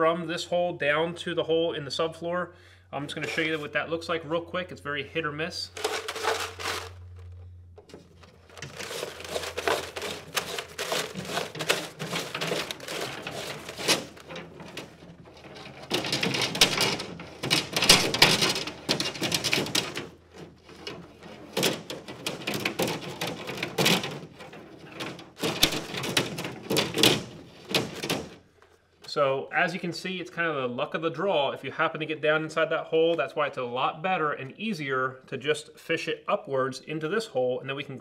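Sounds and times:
fish tape clicking and rattling: 0:05.8 - 0:28.4.

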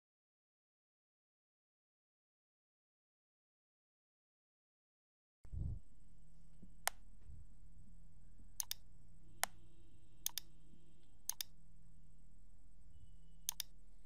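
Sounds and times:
faint steady hum: 0:05.5 - 0:14.0
computer mouse button clicking: 0:08.6 - 0:08.8, 0:09.4 - 0:09.6, 0:10.2 - 0:10.5, 0:11.3 - 0:11.5, 0:13.5 - 0:13.8.

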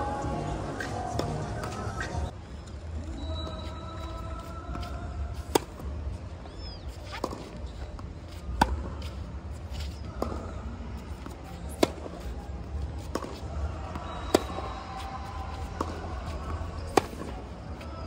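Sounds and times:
racket hitting tennis ball: 0:04.7 - 0:05.9, 0:07.0 - 0:17.9
faint distant racket hits: 0:13.0 - 0:17.4.

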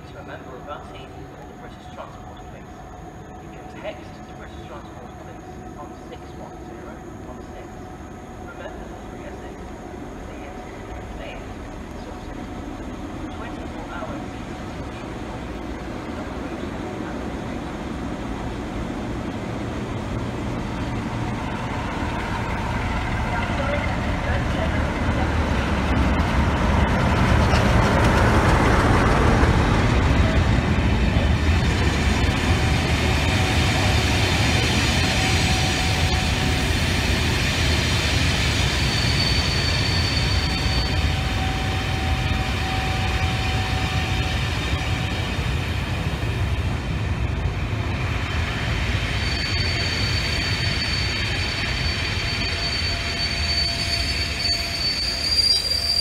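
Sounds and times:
diesel locomotive engine passing: 0:00.0 - 0:56.0
train coaches rumbling on rails: 0:00.0 - 0:56.0
wheel squealing: 0:49.2 - 0:56.0.

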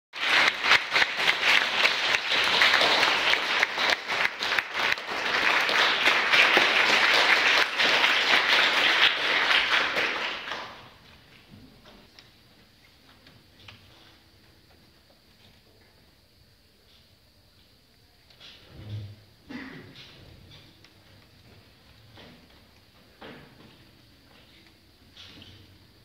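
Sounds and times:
audience applauding: 0:00.1 - 0:11.0.

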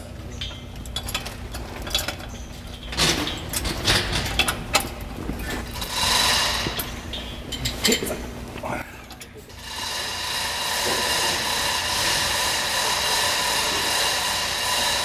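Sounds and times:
chain hoist metal clicking and rattling: 0:00.4 - 0:05.0.

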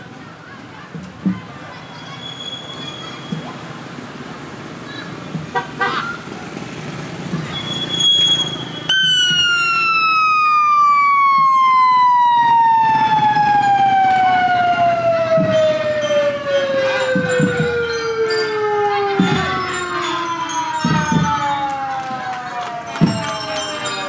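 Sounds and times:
motorcycle siren falling tone: 0:08.8 - 0:23.9.

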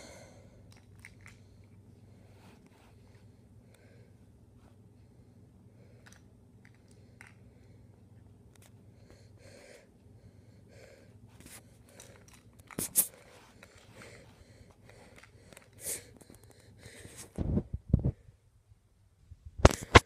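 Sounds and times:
cat sniffing: 0:12.7 - 0:17.3.

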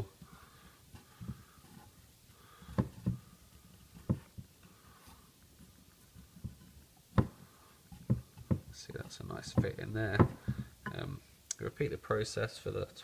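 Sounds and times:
soft knocks: 0:04.0 - 0:04.5.

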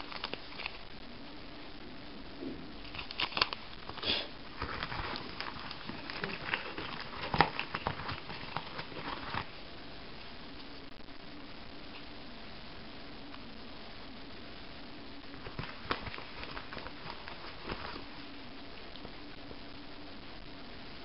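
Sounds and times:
packaging crinkling: 0:00.0 - 0:00.9, 0:02.8 - 0:09.6, 0:15.4 - 0:18.3.

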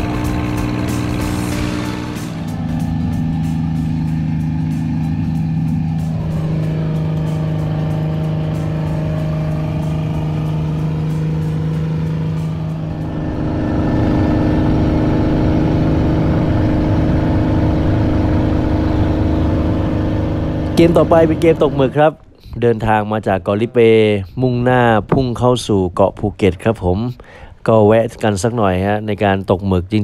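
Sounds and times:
engine running: 0:00.0 - 0:23.0.

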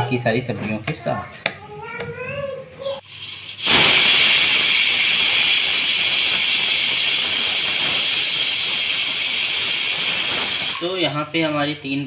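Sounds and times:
pressure cooker whistling steam: 0:03.0 - 0:10.9.

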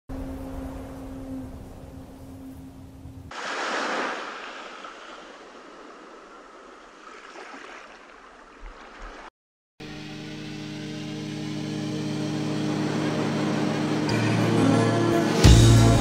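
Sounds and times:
music with sustained tones: 0:09.8 - 0:16.0.

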